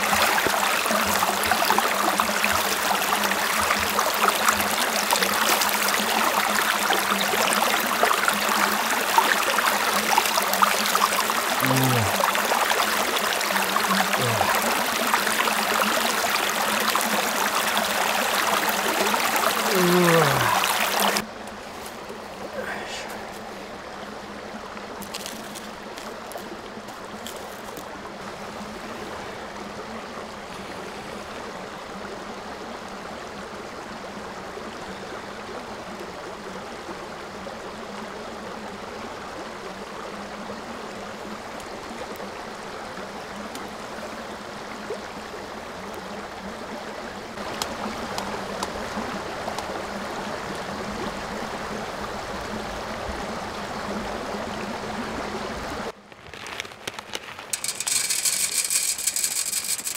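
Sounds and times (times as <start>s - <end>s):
twigs crackling on campfire: 25.0s - 27.9s, 56.0s - 59.9s.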